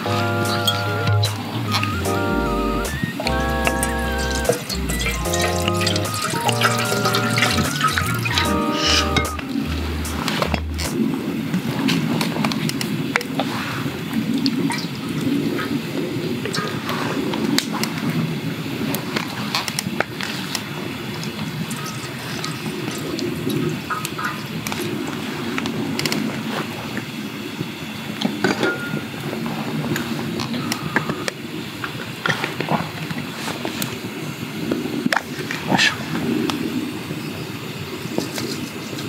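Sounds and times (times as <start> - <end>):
steady low rumble: 8.0 - 11.8.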